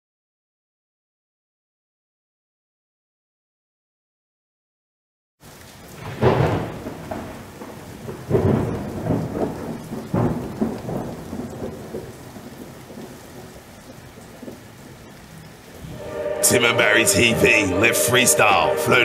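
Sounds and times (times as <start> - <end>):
rain hissing: 5.4 - 19.0
rolling thunder: 5.9 - 19.0.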